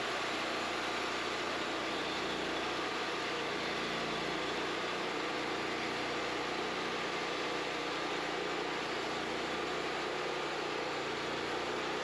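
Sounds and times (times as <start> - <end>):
sawmill engine running: 0.0 - 12.0.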